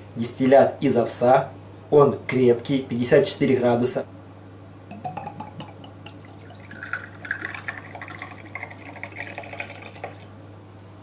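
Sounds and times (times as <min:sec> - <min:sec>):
liquid pouring into glass: 0:04.9 - 0:10.3.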